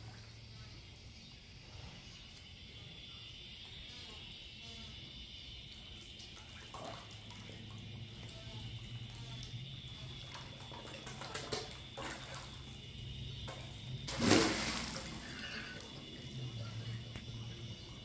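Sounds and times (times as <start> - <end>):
fish splashing at water surface: 6.2 - 17.6.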